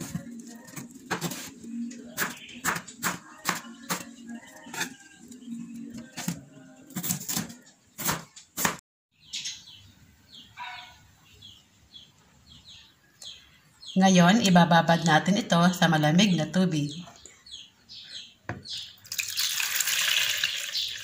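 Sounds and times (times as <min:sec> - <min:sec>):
faint high bird chirps: 0:09.1 - 0:14.6.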